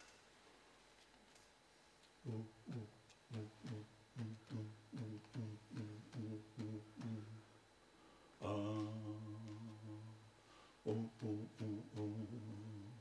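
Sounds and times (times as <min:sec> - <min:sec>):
man making wordless vocal sounds: 0:02.2 - 0:07.5, 0:08.4 - 0:10.2, 0:10.9 - 0:13.0.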